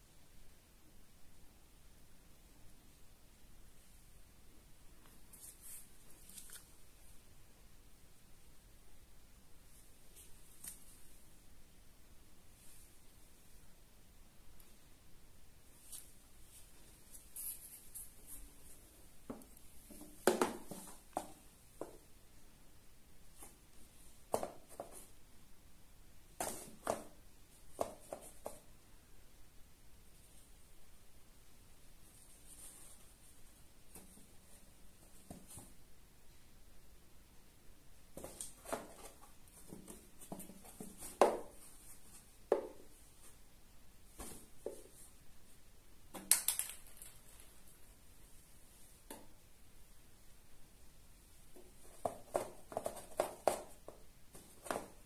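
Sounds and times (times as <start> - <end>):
cat pawing at cardboard: 38.2 - 42.8, 44.1 - 45.0, 51.8 - 55.0.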